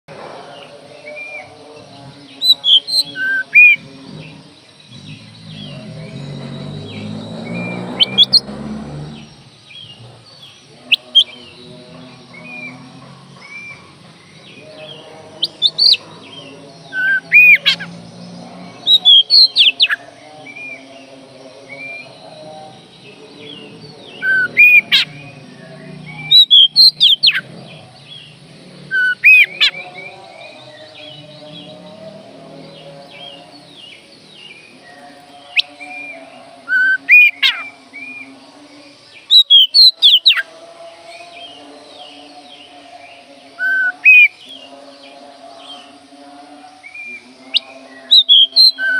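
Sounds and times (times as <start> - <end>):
bird singing whistled notes: 2.2 - 12.8, 13.4 - 38.4, 39.0 - 40.5, 41.4 - 45.9, 46.8 - 48.9.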